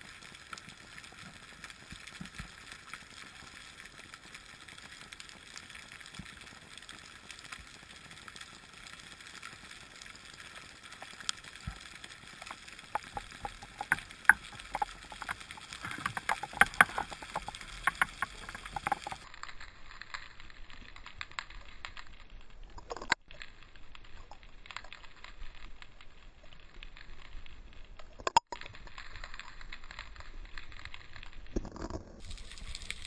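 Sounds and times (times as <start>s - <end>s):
muffled underwater hiss: 0.0s - 19.3s
underwater clicks and crackles: 0.0s - 33.0s.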